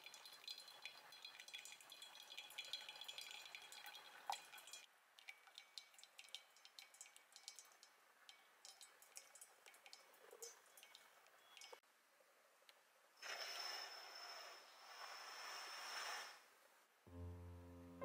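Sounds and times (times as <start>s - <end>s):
hot water pouring from kettle: 0.0s - 11.7s
coffee dripping into cup: 0.0s - 11.8s.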